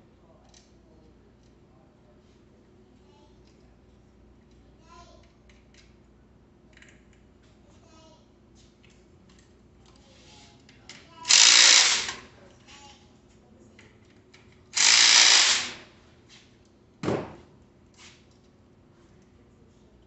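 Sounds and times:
cordless drill running: 11.3 - 12.2, 14.8 - 15.9.

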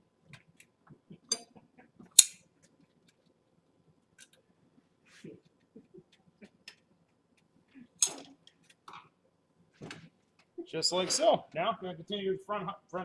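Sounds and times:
metal clink: 1.3 - 1.5.

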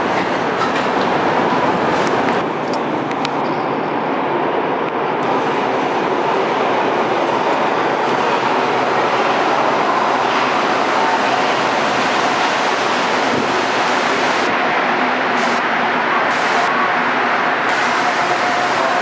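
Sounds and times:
metro train rushing along platform: 0.0 - 19.0.

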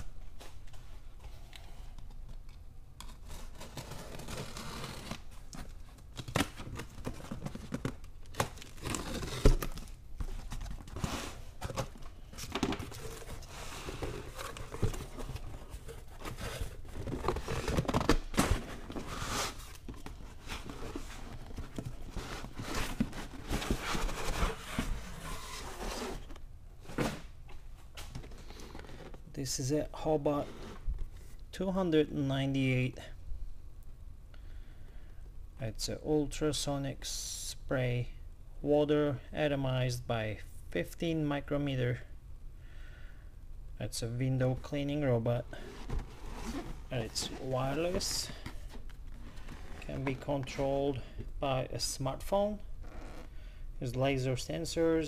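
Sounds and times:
cardboard scraping and rustling: 3.1 - 27.3, 45.5 - 50.6
box cutter slitting packing tape: 8.3 - 9.8.

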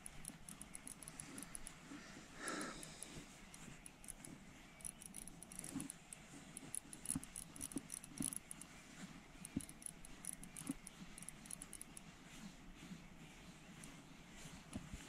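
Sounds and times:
fishing reel metallic ticking: 0.0 - 1.8, 2.7 - 8.6, 9.4 - 12.0.

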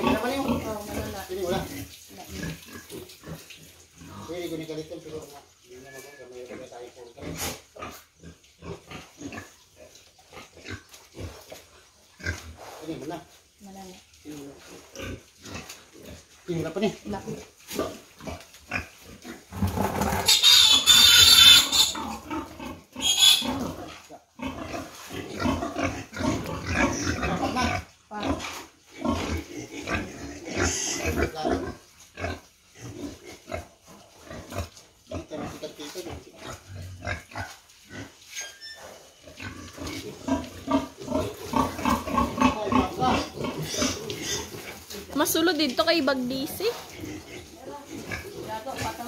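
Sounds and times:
pigs grunting: 0.0 - 13.2, 14.2 - 45.2, 46.0 - 49.0
piglet squealing loudly: 20.1 - 22.2, 23.0 - 23.6.

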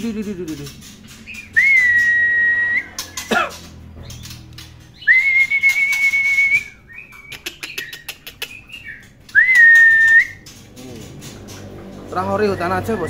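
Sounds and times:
brief whistled notes: 5.1 - 6.8.

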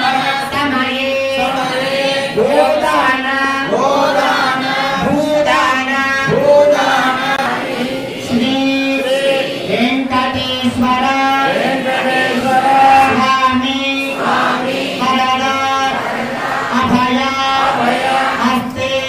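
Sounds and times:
priests chanting: 0.0 - 19.0.

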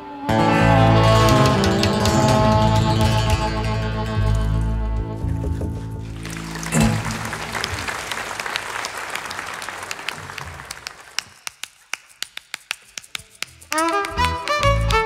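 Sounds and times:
audience applause: 6.1 - 15.0.

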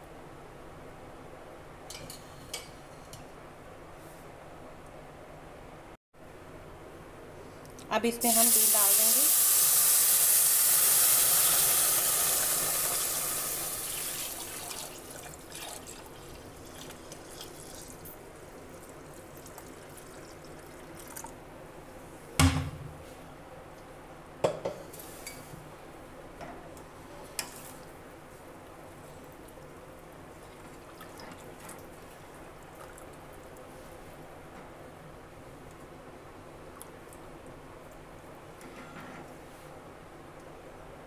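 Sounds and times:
milk pouring into a pot: 9.3 - 18.0, 18.6 - 21.4.

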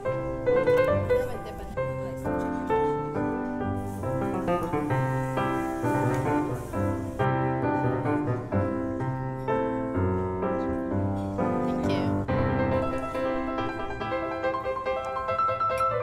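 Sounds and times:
piano background music: 0.0 - 16.0.

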